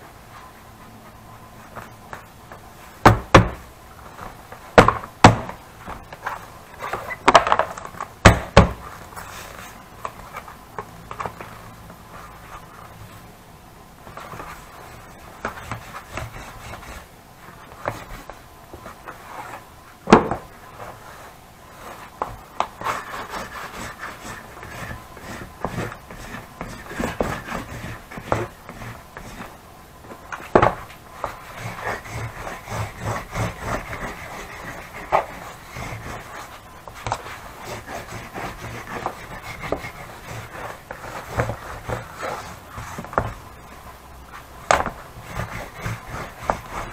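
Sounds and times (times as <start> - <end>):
knocks on wooden bench: 20.1 - 20.4
hands rubbing leather: 20.8 - 29.6, 31.1 - 46.9.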